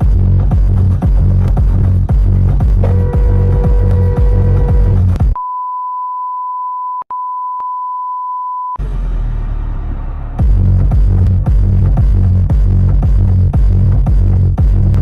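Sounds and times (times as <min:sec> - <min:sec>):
electronic dance music: 0:00.0 - 0:05.4, 0:10.4 - 0:15.0
steady single-pitch beep tone: 0:05.4 - 0:08.8.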